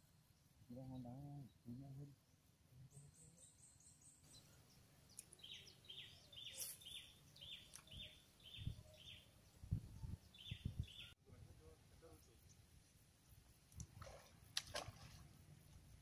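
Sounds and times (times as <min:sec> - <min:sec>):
high bird chirps: 0:05.1 - 0:09.2.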